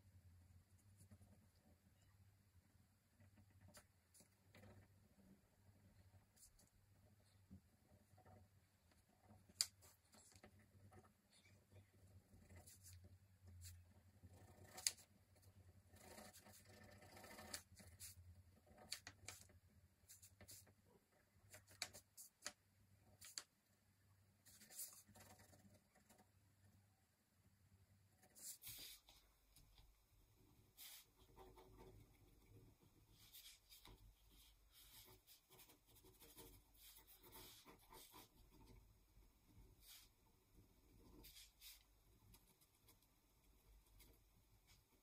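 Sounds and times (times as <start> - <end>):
pen scratching on paper: 12.4 - 13.0, 16.0 - 18.2, 24.4 - 25.6, 28.3 - 29.2, 30.7 - 32.5, 33.1 - 38.9, 39.6 - 40.2, 41.0 - 43.0.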